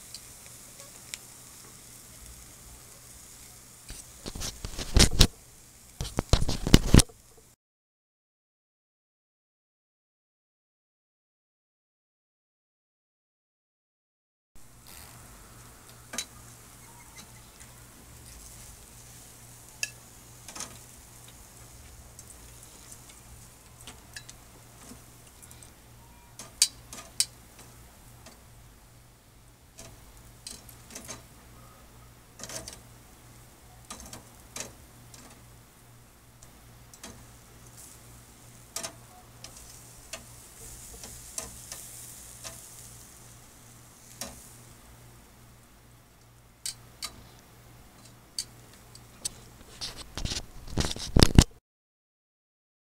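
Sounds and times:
faint grill sizzle: 0.0 - 7.6, 14.6 - 51.5
metal tongs clinking on grill: 0.1 - 1.8, 19.2 - 20.9, 22.2 - 25.7, 29.8 - 31.2, 33.8 - 35.4, 38.7 - 42.8.

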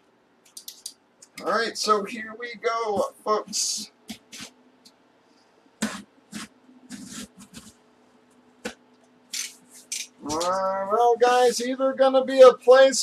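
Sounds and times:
blade scraping cardboard: 5.8 - 7.7.

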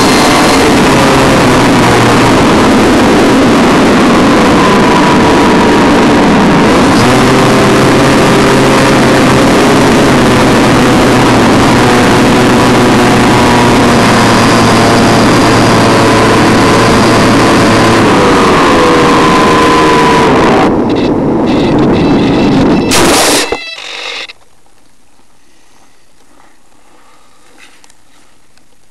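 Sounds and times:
wind rush: 0.0 - 23.7
electric motor whine: 0.0 - 24.4.

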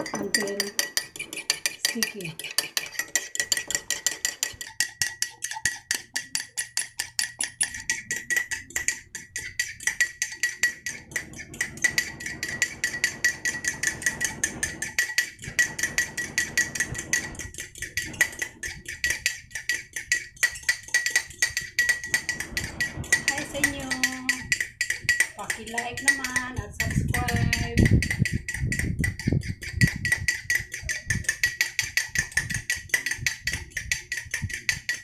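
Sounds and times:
fork clinking in ceramic mug: 0.0 - 11.0
mug ringing: 0.0 - 35.0.

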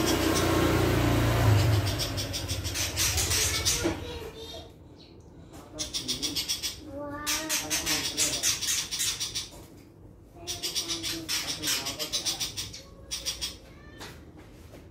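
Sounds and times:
bird harsh rapid chatter: 0.0 - 4.6, 5.7 - 9.6, 10.4 - 13.9.

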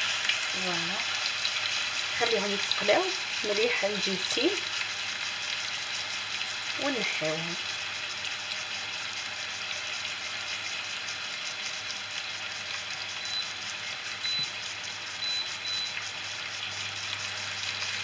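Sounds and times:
meat sizzling in oil: 0.0 - 18.0.

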